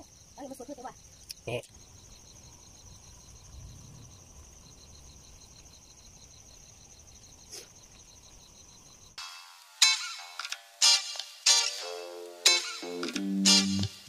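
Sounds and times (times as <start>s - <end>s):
insects chirping: 0.0s - 10.8s, 11.4s - 14.0s
guitar music: 10.9s - 14.0s.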